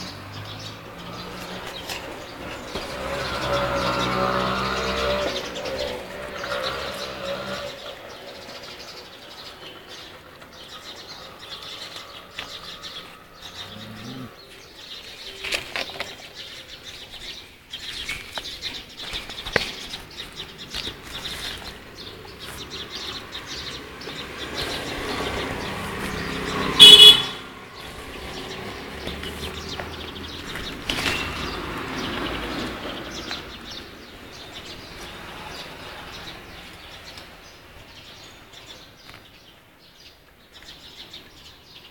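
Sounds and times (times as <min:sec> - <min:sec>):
birds chirping: 0:00.0 - 0:41.9.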